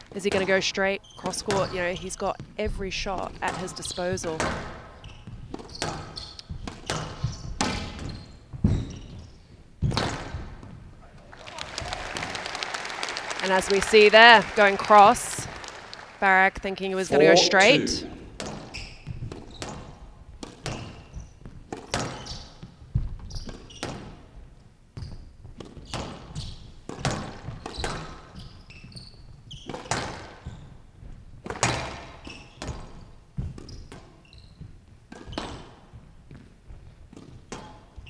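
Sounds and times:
shoes squeaking on court floor: 0:00.3 - 0:10.9, 0:20.6 - 0:24.2, 0:25.0 - 0:38.0.

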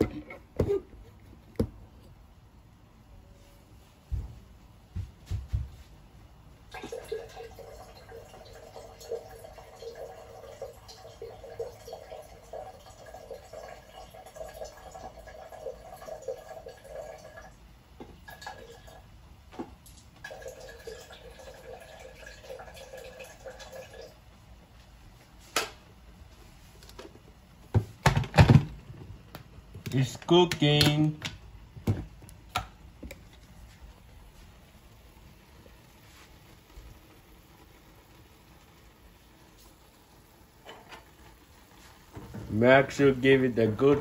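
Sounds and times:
dispenser hum: 0:00.0 - 0:44.0
water pouring into a container: 0:06.7 - 0:17.6, 0:18.2 - 0:19.1, 0:20.2 - 0:24.2.

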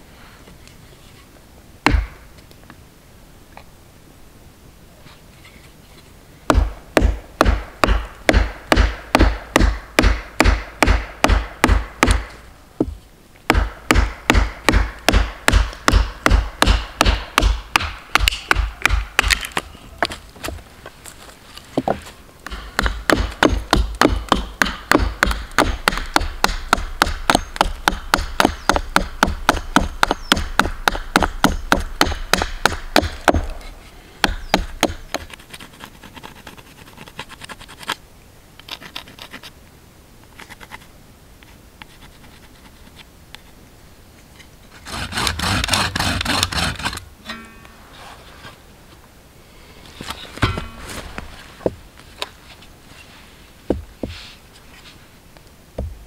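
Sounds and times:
scratching and scraping on wood: 0:19.3 - 0:23.1, 0:33.4 - 0:38.0, 0:38.6 - 0:39.6, 0:40.3 - 0:43.6, 0:44.2 - 0:48.6
hand tool strokes on wood: 0:44.7 - 0:47.0
loud rasping: 0:44.8 - 0:47.0.

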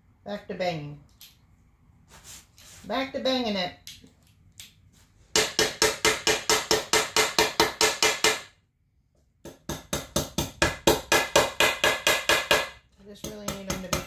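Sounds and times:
rapid hammering on wood: 0:05.3 - 0:08.6, 0:09.4 - 0:14.0.

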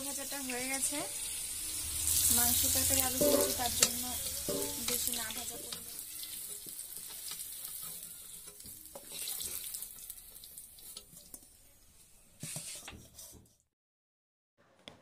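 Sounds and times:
potatoes sizzling in hot oil: 0:00.0 - 0:11.9
spatula scraping pan: 0:00.7 - 0:13.6.

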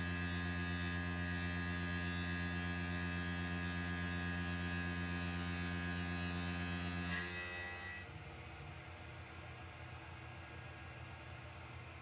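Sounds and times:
cutter squeal: 0:07.1 - 0:08.1.

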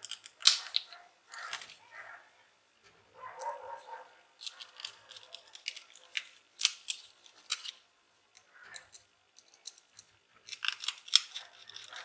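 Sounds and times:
screwdriver clicking and scraping: 0:08.7 - 0:12.0.

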